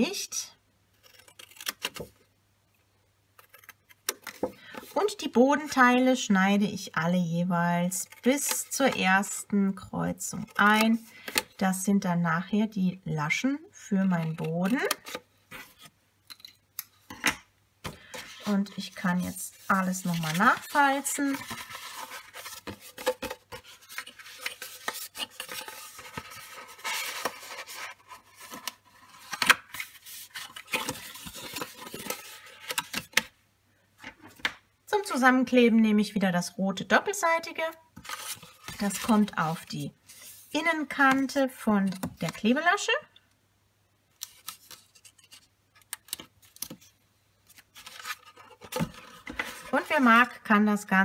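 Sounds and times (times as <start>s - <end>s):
cardstock rustling and rubbing: 17.9s - 33.2s, 38.0s - 42.4s, 47.5s - 50.1s.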